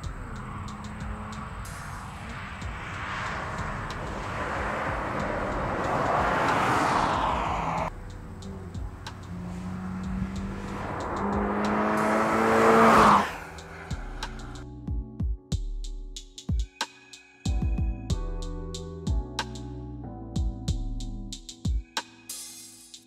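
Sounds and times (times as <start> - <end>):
car engine and exhaust racing: 0.0 - 14.6.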